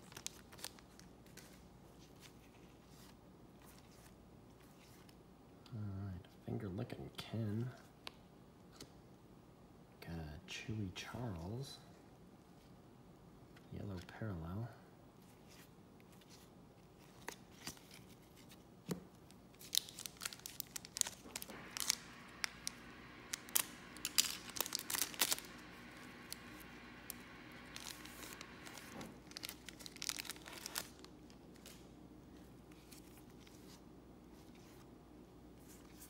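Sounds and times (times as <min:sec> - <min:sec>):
foil wrapper tearing and crinkling: 0:19.5 - 0:31.8.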